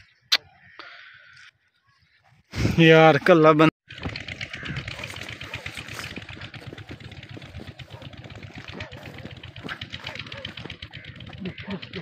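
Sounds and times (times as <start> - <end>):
small engine running: 3.9 - 12.0.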